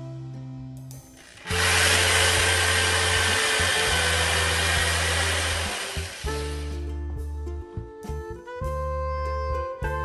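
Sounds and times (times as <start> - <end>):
electric drill whining: 1.2 - 6.9.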